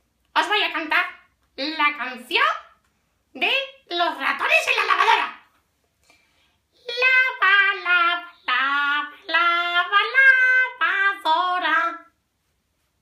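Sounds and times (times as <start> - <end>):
high-pitched puppet voice singing: 6.8 - 12.1.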